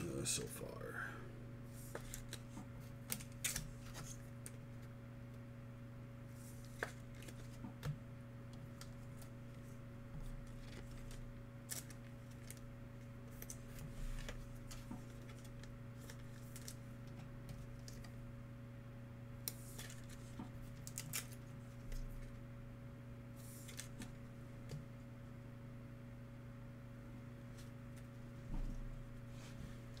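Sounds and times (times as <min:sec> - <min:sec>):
low electrical hum: 0:00.0 - 0:30.0
cards being flipped through: 0:01.7 - 0:04.9, 0:06.4 - 0:07.7, 0:10.4 - 0:12.6, 0:13.3 - 0:18.2, 0:19.5 - 0:22.3, 0:23.4 - 0:24.2.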